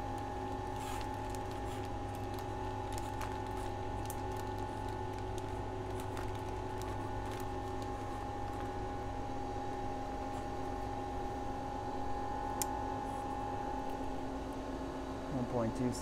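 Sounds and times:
machine hum: 0:00.0 - 0:16.0
faint crinkles and ticks: 0:00.2 - 0:08.8.

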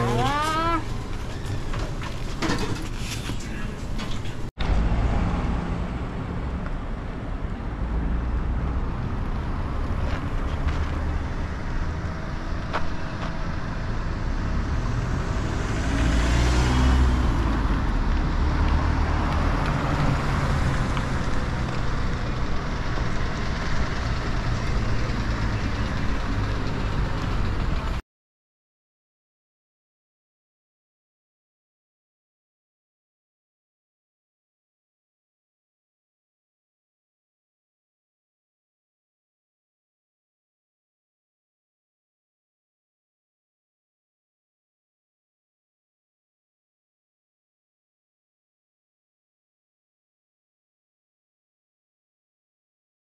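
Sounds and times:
low traffic rumble: 0:00.0 - 0:28.0
vehicle passing: 0:04.6 - 0:28.0.

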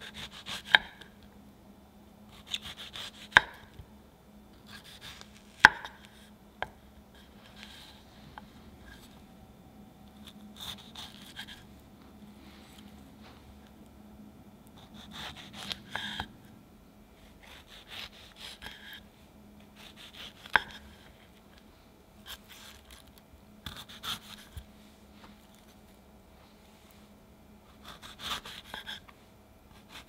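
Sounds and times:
knife cutting strawberries: 0:02.3 - 0:03.8, 0:04.6 - 0:08.0, 0:10.0 - 0:11.7, 0:14.7 - 0:16.3, 0:19.7 - 0:21.0.

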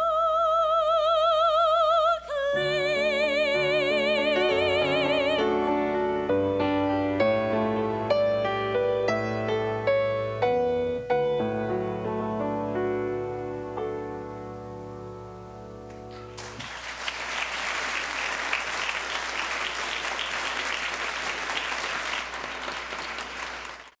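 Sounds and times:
grand piano chord ringing: 0:05.6 - 0:16.4
audience applause: 0:16.3 - 0:24.0.

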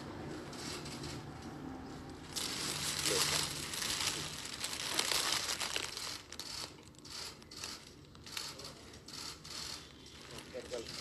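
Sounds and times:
cellophane wrapping crinkling: 0:02.3 - 0:08.7.

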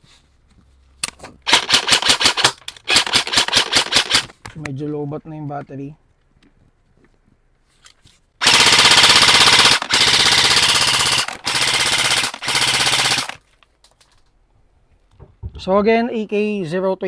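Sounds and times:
airsoft gun firing full auto: 0:01.5 - 0:04.3, 0:08.4 - 0:13.4.

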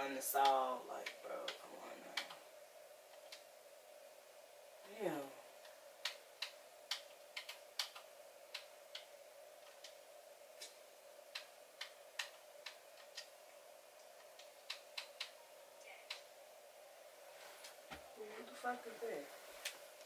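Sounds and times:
faint steady hum: 0:00.0 - 0:20.0
faint sharp clicks: 0:14.0 - 0:16.3.

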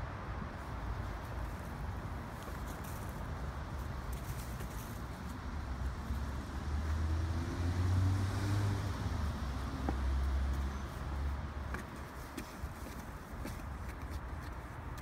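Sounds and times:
passing vehicle rumble: 0:05.2 - 0:11.7.

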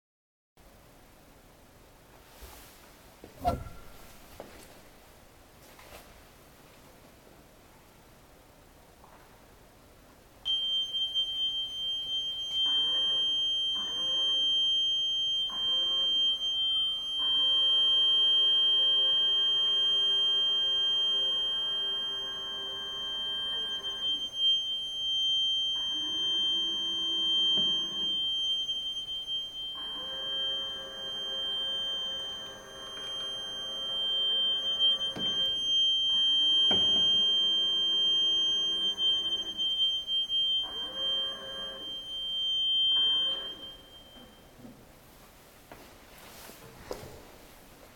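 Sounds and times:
high-pitched pure tone: 0:10.5 - 0:44.4.

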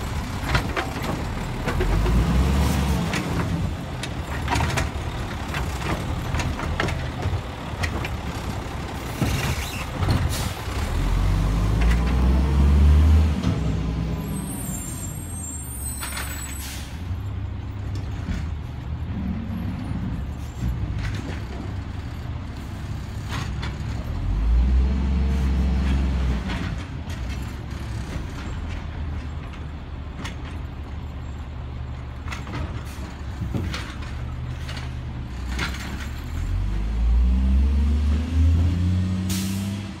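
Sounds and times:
cart and arm knocking and clattering: 0:00.0 - 0:12.5, 0:17.6 - 0:24.6, 0:25.7 - 0:37.0
diesel engine idling and revving: 0:00.0 - 0:40.0.

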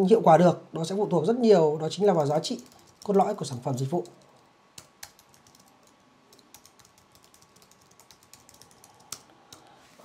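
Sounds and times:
typing on computer keyboard: 0:02.2 - 0:09.7.

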